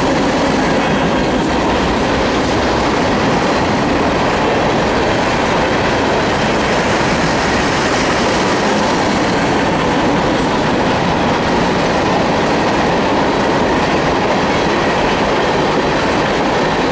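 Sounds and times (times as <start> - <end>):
train wheels on rails: 0.0 - 16.9.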